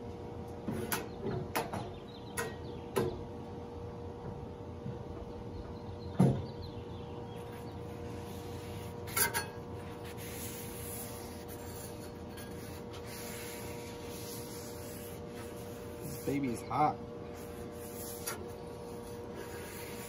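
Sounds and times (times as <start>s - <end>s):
steady hum: 2.4s - 20.0s
spatula scraping griddle: 8.3s - 16.7s.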